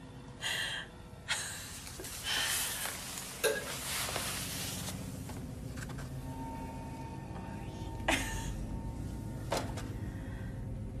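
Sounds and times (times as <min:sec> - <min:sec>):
clothes rustling: 0:01.7 - 0:06.1.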